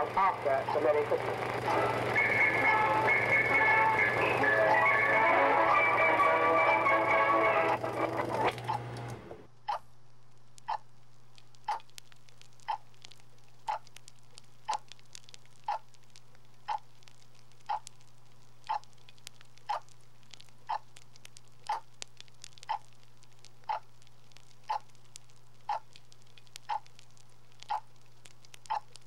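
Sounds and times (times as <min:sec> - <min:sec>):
television christmas music: 0:00.0 - 0:08.9
low electrical hum: 0:00.0 - 0:29.0
clock ticking: 0:09.6 - 0:09.9, 0:10.6 - 0:10.9, 0:11.6 - 0:12.0, 0:12.6 - 0:12.9, 0:13.6 - 0:13.9, 0:14.6 - 0:14.9, 0:15.6 - 0:15.9, 0:16.6 - 0:16.9, 0:17.6 - 0:18.0, 0:18.7 - 0:18.9, 0:19.6 - 0:19.9, 0:20.7 - 0:20.9, 0:21.6 - 0:21.9, 0:22.6 - 0:22.9, 0:23.6 - 0:23.9, 0:24.6 - 0:24.9, 0:25.6 - 0:25.9, 0:26.6 - 0:27.0, 0:27.6 - 0:27.9, 0:28.6 - 0:29.0.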